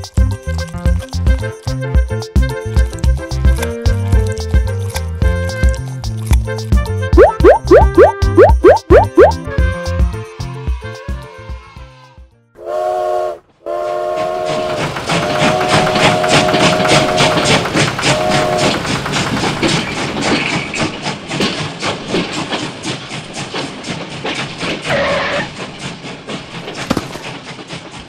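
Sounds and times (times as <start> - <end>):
background music: 0.0 - 12.5
steam train chugging: 9.4 - 28.0
steam whistle blasts: 12.6 - 18.8.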